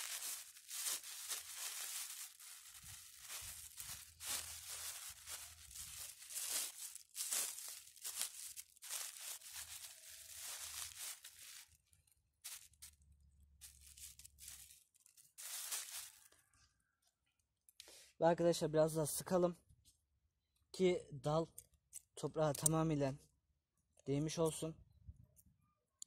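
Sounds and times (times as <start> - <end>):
plastic bag crinkling: 0.0 - 13.0, 13.6 - 16.4.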